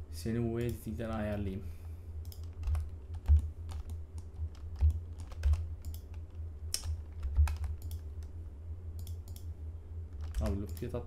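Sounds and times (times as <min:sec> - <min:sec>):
keyboard keys tapping: 0:02.3 - 0:08.0.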